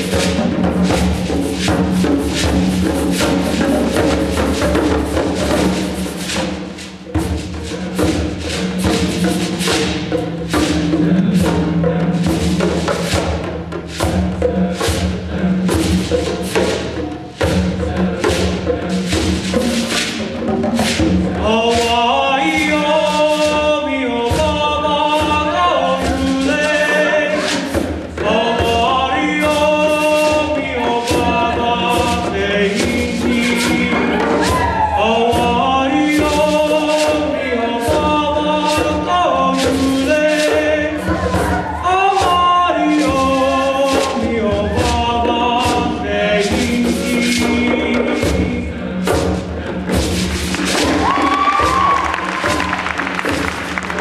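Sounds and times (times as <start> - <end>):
hand drums beating: 0.0 - 54.0
mixed choir singing: 10.6 - 54.0
man singing into a microphone: 21.3 - 49.2.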